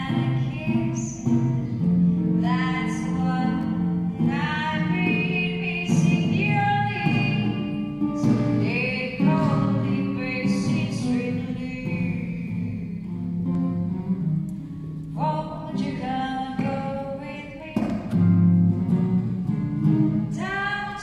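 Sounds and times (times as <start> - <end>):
woman singing: 0.0 - 1.4, 2.2 - 13.1, 15.2 - 18.3, 20.3 - 21.0
acoustic guitar: 0.0 - 21.0.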